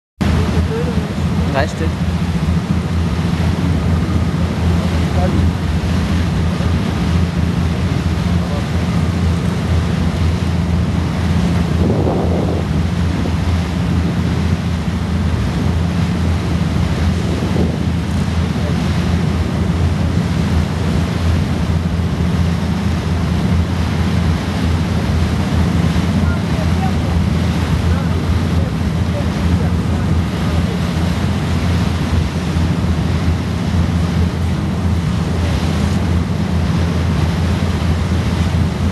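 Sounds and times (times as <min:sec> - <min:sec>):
boat engine droning: 0:00.2 - 0:38.9
water rushing past hull: 0:00.2 - 0:38.9
wind buffeting microphone: 0:00.2 - 0:38.9.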